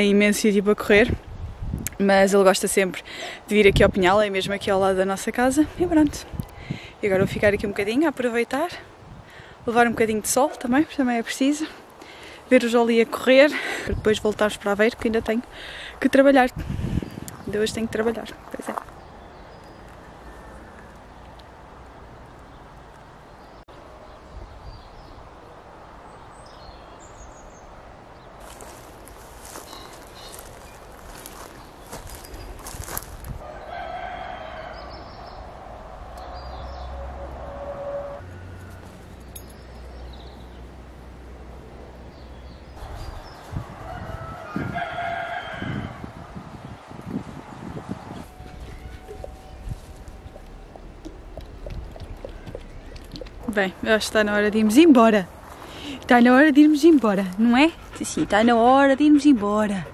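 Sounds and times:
rustling through grass: 28.4s - 33.4s, 42.8s - 44.8s, 48.3s - 50.6s, 54.8s - 58.4s
rooster crowing: 33.4s - 35.8s, 43.7s - 46.2s.

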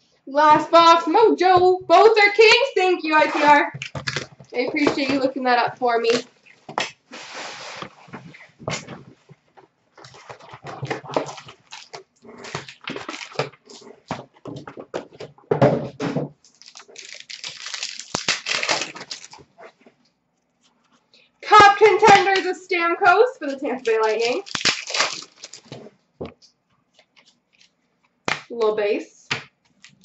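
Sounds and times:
plastic wrapper crinkling: 2.5s - 6.7s, 10.0s - 15.1s, 16.4s - 19.7s, 23.4s - 28.2s
cardboard box tearing: 16.5s - 19.4s, 24.1s - 25.8s.

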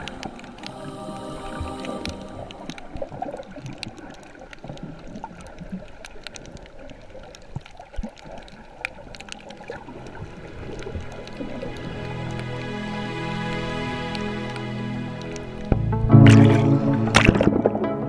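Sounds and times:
muffled underwater churning: 0.0s - 18.0s
sharp clicks and crackles: 2.7s - 12.4s.

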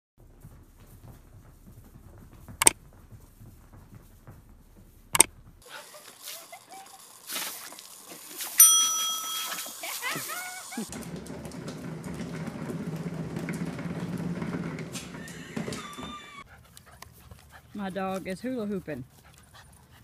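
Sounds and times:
hose water jet spraying: 5.6s - 11.0s
bell-like ding: 8.6s - 9.8s.

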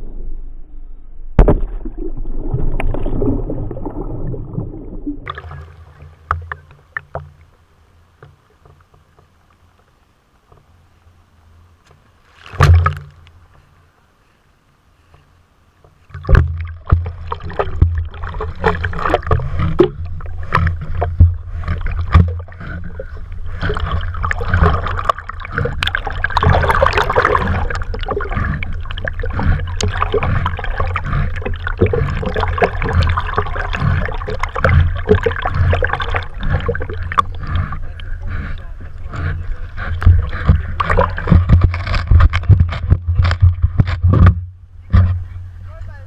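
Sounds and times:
water splashing and sloshing: 1.3s - 13.9s, 15.8s - 45.7s
water rushing past camera: 1.4s - 8.1s, 16.1s - 44.4s.

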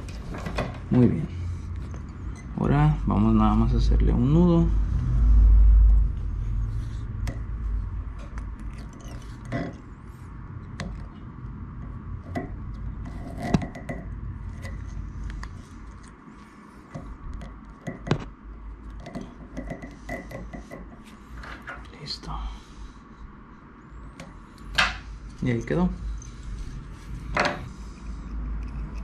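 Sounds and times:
low rumble: 0.8s - 8.9s.

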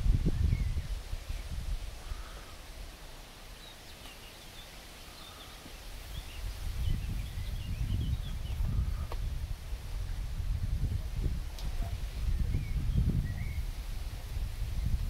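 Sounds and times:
small birds twittering: 0.3s - 9.2s, 11.6s - 13.9s.

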